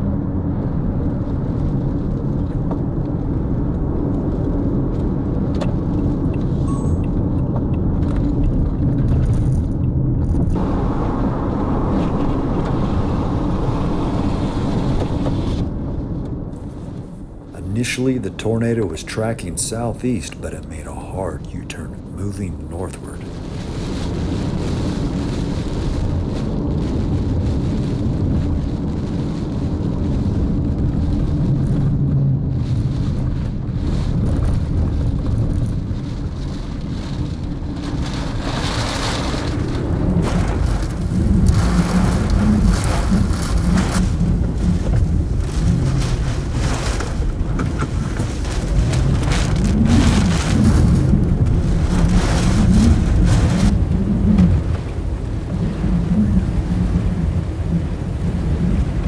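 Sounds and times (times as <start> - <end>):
gusting wind: 0.0 - 59.0
rain: 0.0 - 59.0
rumbling thunder: 23.2 - 59.0.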